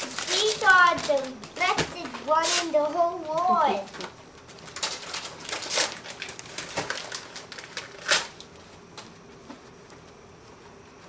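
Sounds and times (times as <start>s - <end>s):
wrapping paper tearing: 0.0s - 8.5s.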